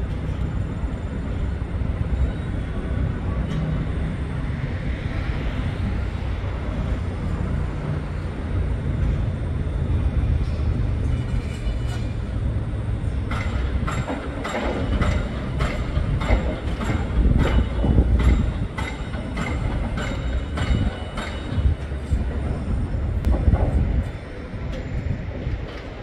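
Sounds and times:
low rumble of city traffic: 0.0 - 26.0.

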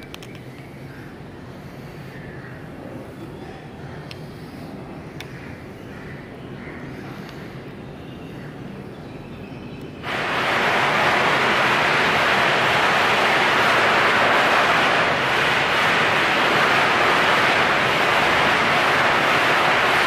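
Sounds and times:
fireworks hissing: 10.0 - 20.0.

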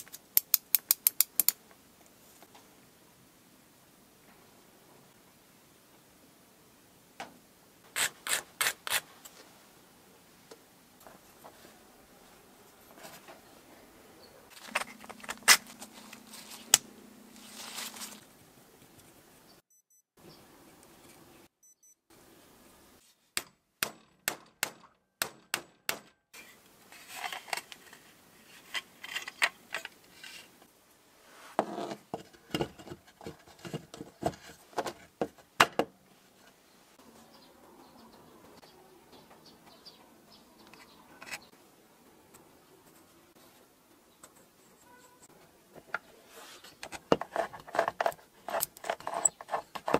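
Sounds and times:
small parts clicking and tapping: 0.0 - 1.7
rustling: 14.5 - 19.3
dull knocks and scrapes: 31.5 - 36.6, 45.8 - 49.9.

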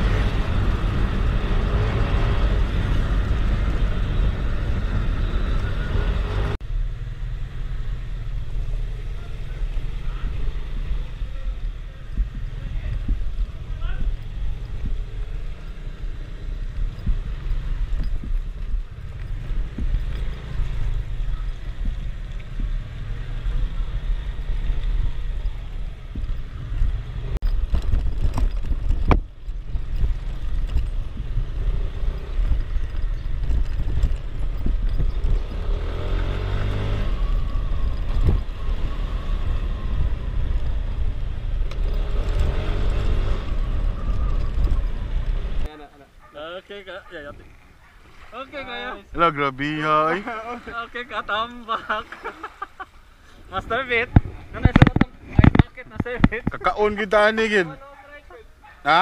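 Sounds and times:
wind buffeting microphone: 0.0 - 6.6, 9.5 - 45.7, 53.4 - 57.2
motor scooter running: 0.0 - 45.7.

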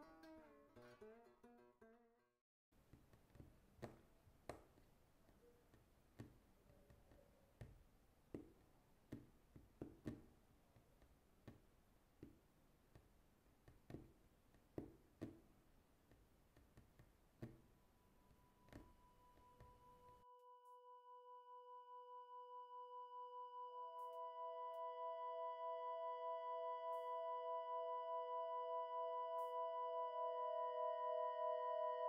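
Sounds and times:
faint clicks and taps: 2.8 - 17.8.

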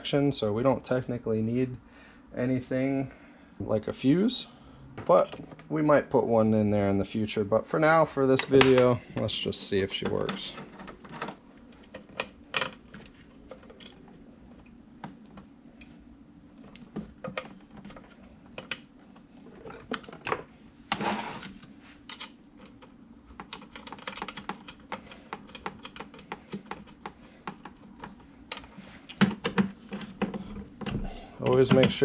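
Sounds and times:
faint low hum: 0.0 - 32.0
cables and plastic connectors clicking: 16.7 - 19.2, 22.0 - 32.0.

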